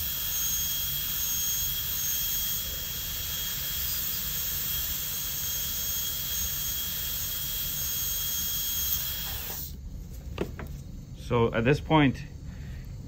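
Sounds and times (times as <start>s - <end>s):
dental drill whining: 0.0s - 9.8s
water spray hiss: 0.0s - 9.8s.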